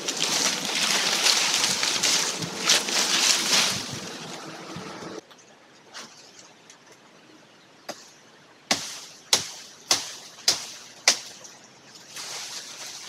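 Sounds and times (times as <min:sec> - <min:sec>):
blade hacking tree branch: 0:00.0 - 0:04.4, 0:08.7 - 0:13.0
leaves rustling: 0:00.0 - 0:05.2, 0:08.7 - 0:13.0.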